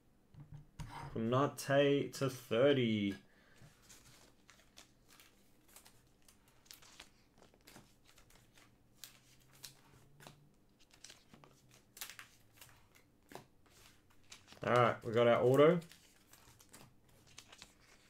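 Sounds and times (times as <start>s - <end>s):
plastic card sleeves crinkling: 3.7s - 18.0s.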